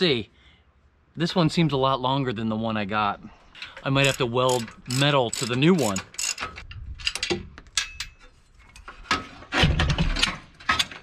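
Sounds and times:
metal winch clinking and rattling: 3.5s - 9.4s, 10.1s - 11.0s.

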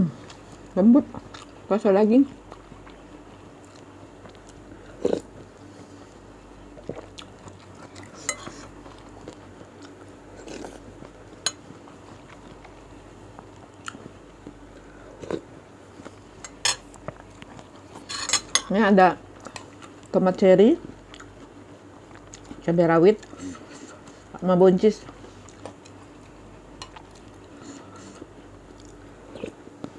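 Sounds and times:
close chewing and mouth sounds: 0.1s - 18.5s, 19.2s - 29.9s
cutlery clinking on bowl: 8.2s - 8.6s, 18.1s - 18.7s.

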